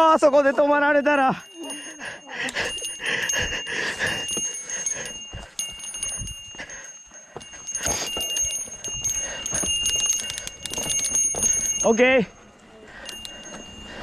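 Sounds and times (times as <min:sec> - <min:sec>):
small bell ringing: 0:00.0 - 0:14.0
bike clicks and knocks: 0:09.5 - 0:11.6.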